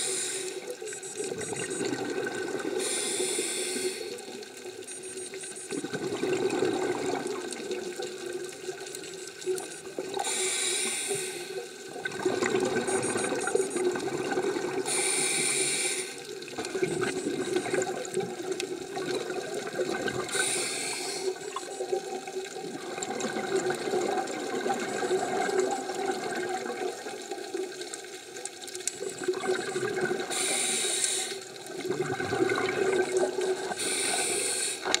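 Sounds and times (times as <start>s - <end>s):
regulator inhale hiss: 0.0s - 0.7s, 2.8s - 4.3s, 10.2s - 11.7s, 14.8s - 16.3s, 20.3s - 21.4s, 30.3s - 31.5s, 33.7s - 35.0s
gurgling exhaled bubbles: 1.3s - 2.8s, 5.7s - 10.2s, 11.8s - 14.9s, 16.4s - 20.5s, 21.3s - 27.8s, 29.0s - 30.6s, 31.4s - 33.8s.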